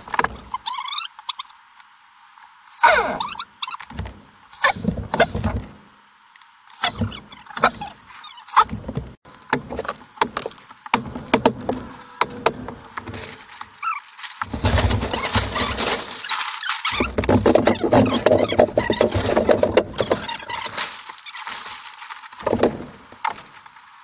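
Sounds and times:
plastic sheeting crinkling: 13.1 - 24.0.

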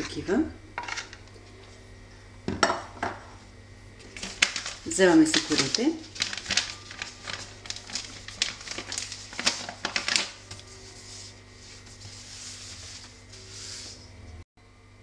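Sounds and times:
plastic bag crinkling: 4.0 - 12.2
pastry sheets rustling: 4.0 - 14.2.

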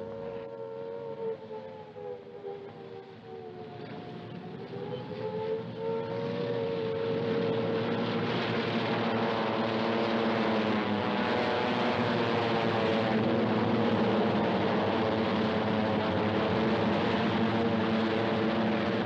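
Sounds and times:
propeller plane engines droning: 0.0 - 19.0.

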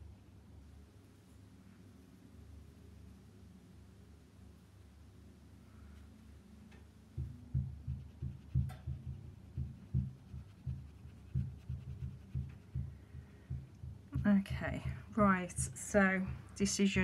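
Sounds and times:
paintbrush dabbing on paper: 7.5 - 13.2.

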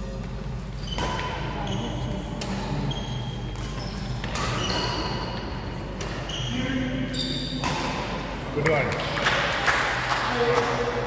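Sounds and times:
shoe squeaks: 0.8 - 2.1, 2.7 - 5.5, 6.2 - 7.6
rackets hitting shuttlecock: 3.5 - 6.3, 7.5 - 9.2.

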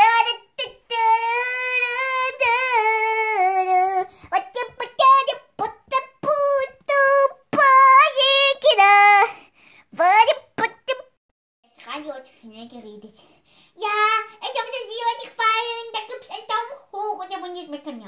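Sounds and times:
high-pitched voice singing: 0.0 - 9.4, 10.0 - 11.1.

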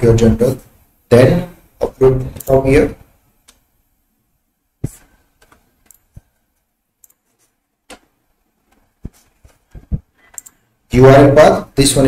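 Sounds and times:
faint mouse clicks: 7.0 - 7.3, 10.2 - 10.6.

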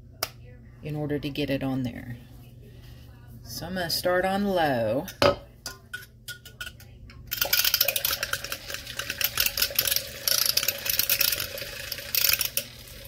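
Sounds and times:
milk frother whisking: 7.3 - 13.0.

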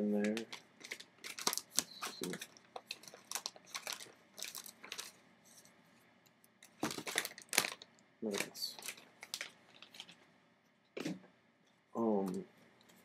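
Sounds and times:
paper envelope crinkling: 0.2 - 5.7, 6.6 - 10.2.

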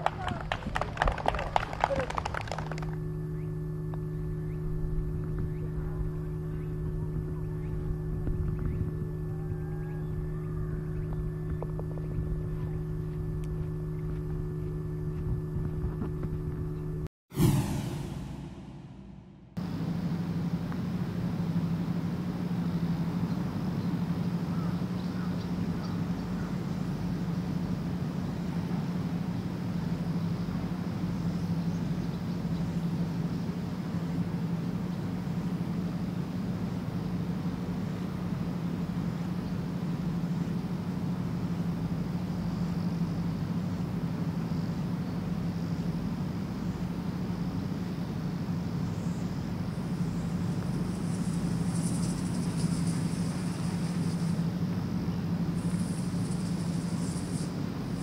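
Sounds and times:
steady low hum: 0.0 - 58.0
low drone: 1.6 - 20.8.

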